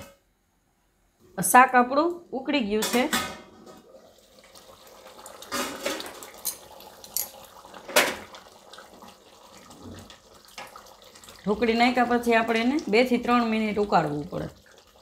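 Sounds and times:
thick gravy bubbling: 3.7s - 15.0s.

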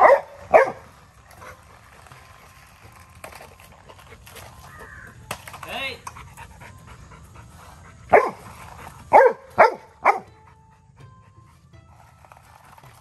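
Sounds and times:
puppy barking: 0.0s - 0.9s, 8.1s - 10.4s.

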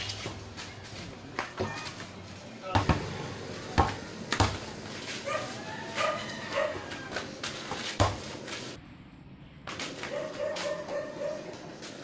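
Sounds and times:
basketball bouncing on dirt: 1.2s - 4.9s, 6.5s - 8.7s.

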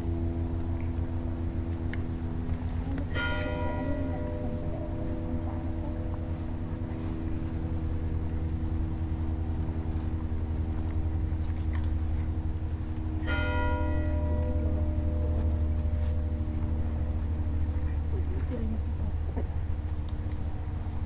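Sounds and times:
low steady hum: 0.0s - 21.0s
bell-like tones: 3.1s - 8.6s.

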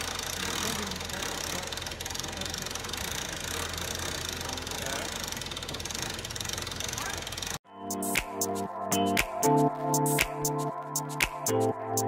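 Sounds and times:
motor running with pulsing hum: 0.0s - 7.6s.

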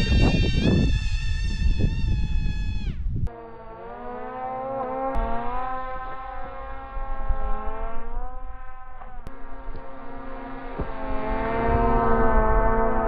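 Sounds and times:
rc plane motor whining: 0.0s - 3.0s
wind rumble on microphone: 0.0s - 3.3s, 6.3s - 9.9s, 10.7s - 13.0s.

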